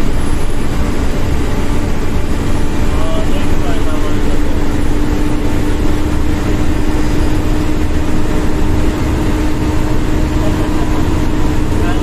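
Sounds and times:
vehicle engine drone and road noise: 0.0s - 12.0s.

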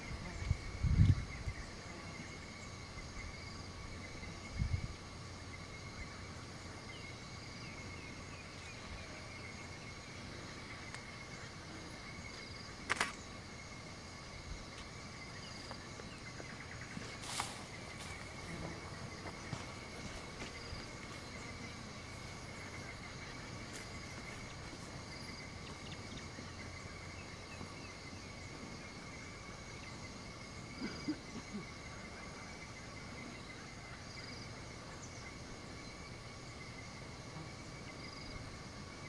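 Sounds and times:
high insect drone: 0.0s - 39.0s
sharp clicks: 12.8s - 13.2s.

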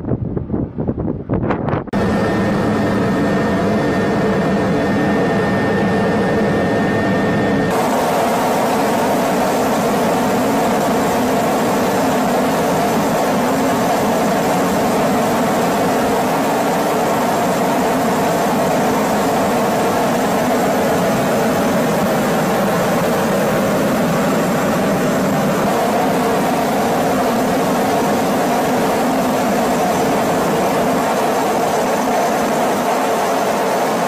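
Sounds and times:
helicopter engine and rotor drone: 1.9s - 34.0s.

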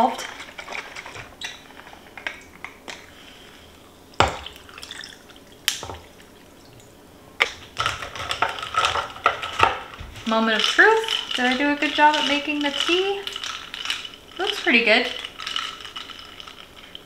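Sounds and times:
liquid pouring over ice: 4.2s - 6.6s, 10.5s - 17.0s
ice rattling in glass: 7.8s - 17.0s.

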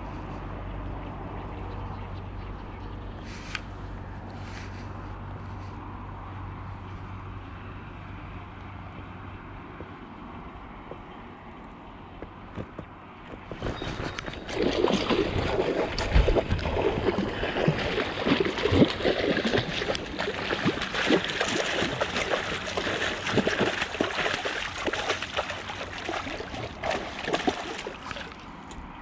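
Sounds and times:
water splashing and gurgling: 13.4s - 29.0s.

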